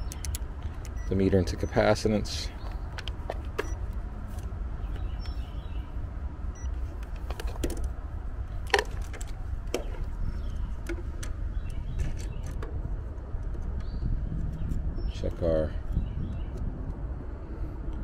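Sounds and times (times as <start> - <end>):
test leads clicking and rattling: 0.0 - 2.0.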